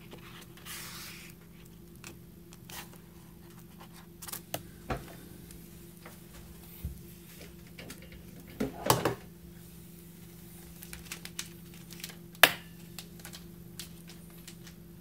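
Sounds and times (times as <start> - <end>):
paper rustle: 0.0 - 4.5, 10.2 - 14.8
steady low hum: 0.0 - 15.0.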